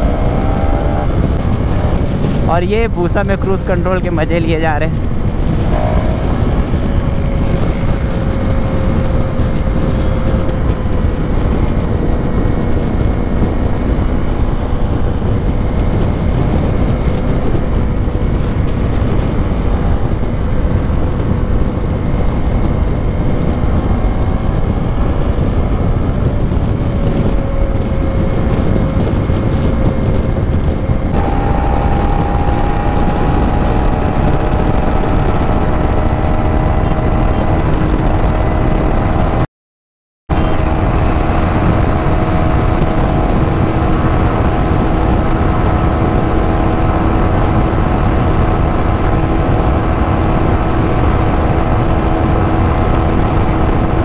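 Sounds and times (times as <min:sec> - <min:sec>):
motorcycle engine running: 0:00.0 - 0:02.6, 0:04.7 - 0:39.4, 0:40.3 - 0:54.0
rushing noise: 0:00.0 - 0:39.5.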